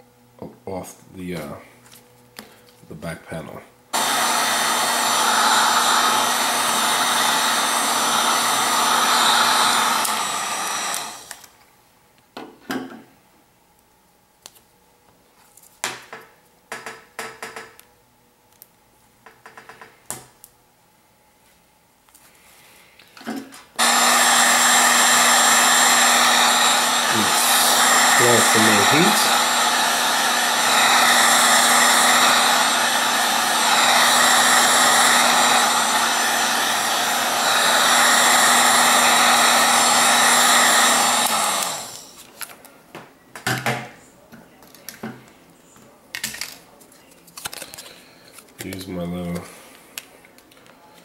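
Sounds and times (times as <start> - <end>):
heat gun blowing hum: 3.9 - 11.6, 23.8 - 42.3.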